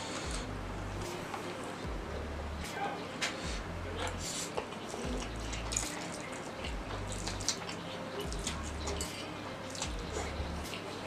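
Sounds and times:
mouth smacks and clicks: 0:02.6 - 0:10.8.

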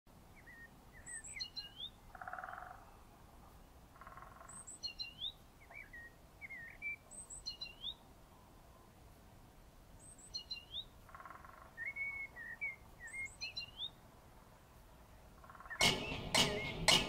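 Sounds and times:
songbirds chirping: 0:00.1 - 0:17.0
buzzy bird trill: 0:15.4 - 0:17.0.

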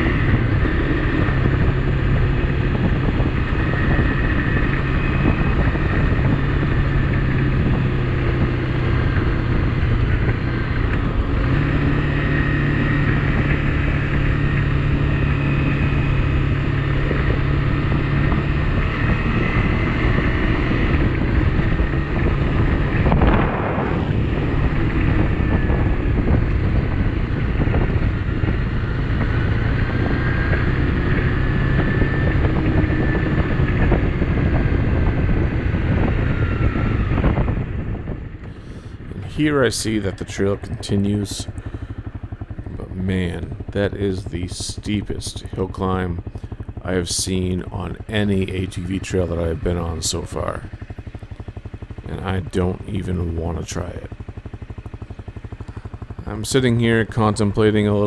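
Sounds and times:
motorcycle engine running: 0:00.0 - 0:58.0
wind on microphone: 0:00.0 - 0:58.0.

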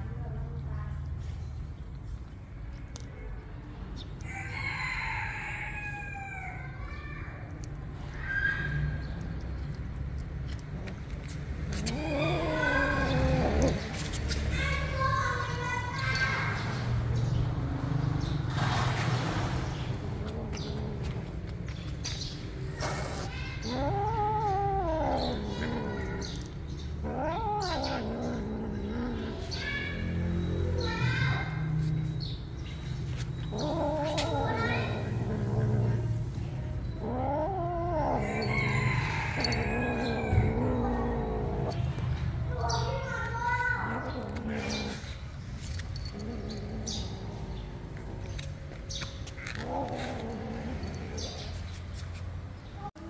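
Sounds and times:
cat warning yowls: 0:11.7 - 0:15.0, 0:22.7 - 0:31.0, 0:33.4 - 0:36.1, 0:36.7 - 0:42.0
animal calling: 0:11.7 - 0:16.1, 0:20.0 - 0:31.5, 0:32.7 - 0:45.4.

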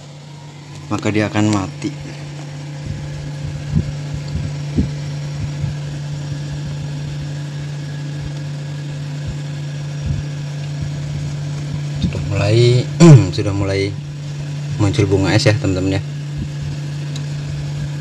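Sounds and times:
refrigerator compressor hum: 0:00.0 - 0:18.0.

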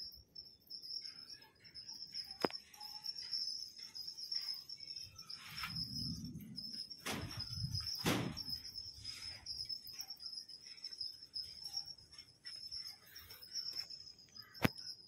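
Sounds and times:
high-pitched insect chirring: 0:00.0 - 0:15.0
loud thumps: 0:07.0 - 0:08.7.

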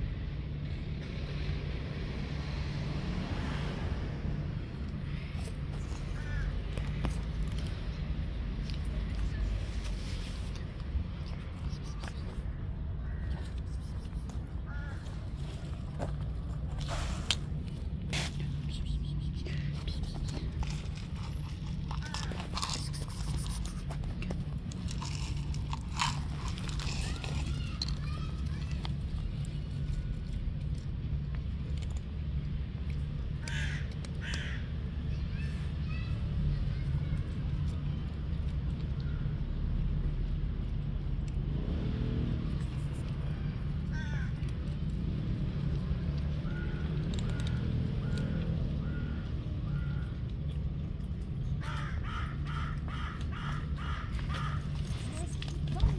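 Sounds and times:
low rumble of road traffic: 0:00.0 - 0:55.9
cat crunching kibble: 0:04.8 - 0:12.6, 0:13.3 - 0:35.0, 0:40.6 - 0:48.8, 0:49.6 - 0:55.9
crows cawing: 0:06.1 - 0:07.2, 0:13.0 - 0:13.4, 0:14.7 - 0:15.2, 0:33.4 - 0:34.7, 0:43.9 - 0:44.4, 0:51.6 - 0:54.9.

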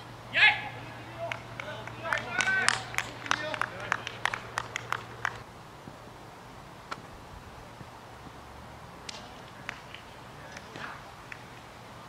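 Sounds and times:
spectators clapping: 0:01.1 - 0:05.5, 0:09.0 - 0:11.7.

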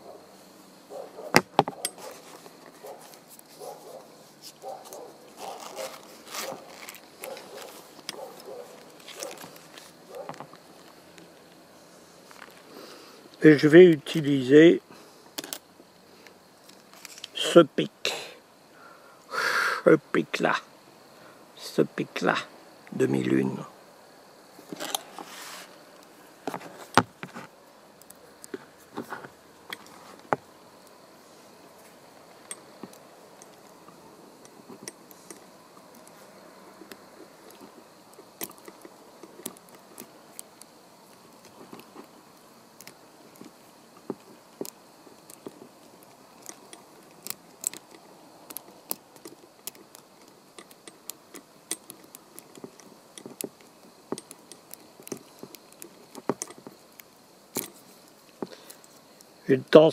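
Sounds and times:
lock pick clicks and scrapes: 0:41.4 - 0:56.8, 0:57.5 - 0:58.9.

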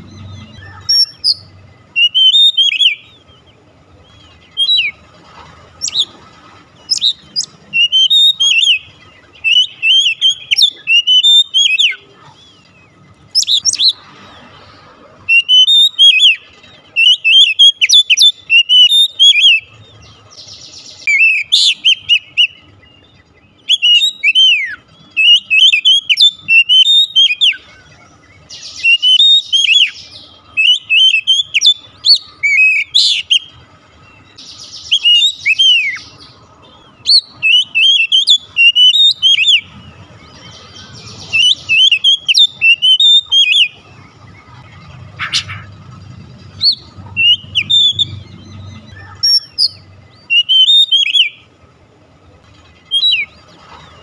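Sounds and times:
harsh rasping bird notes: 0:00.0 - 0:03.4, 0:37.2 - 0:51.5
bird singing whistled notes: 0:00.0 - 0:05.0, 0:06.8 - 0:14.0, 0:15.2 - 0:45.7, 0:46.5 - 0:51.5, 0:52.8 - 0:54.0.

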